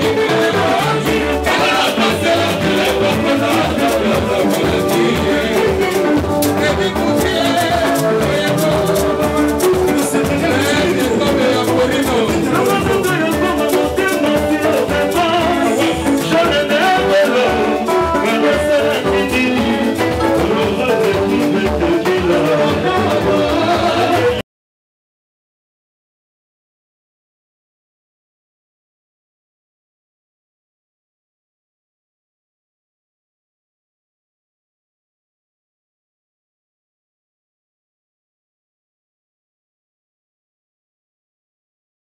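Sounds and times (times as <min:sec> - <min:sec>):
drum kit beat: 0:00.0 - 0:24.4
electric guitars: 0:00.0 - 0:24.4
man singing: 0:00.0 - 0:24.4.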